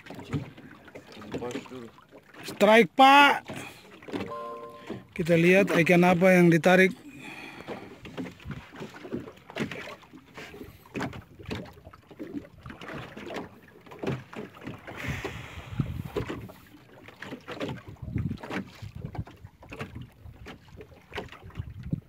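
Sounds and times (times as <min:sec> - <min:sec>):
water slapping against boat hull: 0:00.0 - 0:06.6, 0:07.4 - 0:22.0
wind buffeting microphone: 0:15.0 - 0:16.6, 0:17.9 - 0:19.3, 0:21.4 - 0:22.0.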